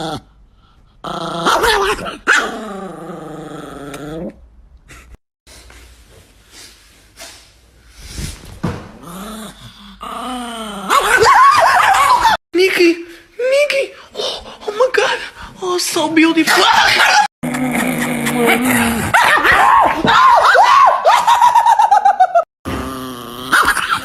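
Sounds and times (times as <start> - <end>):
small dog growling: 1.0 - 4.4.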